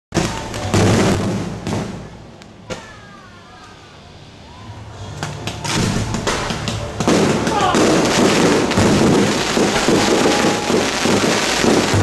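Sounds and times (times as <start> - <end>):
fireworks booms with crackle: 0.1 - 3.2, 5.3 - 12.0.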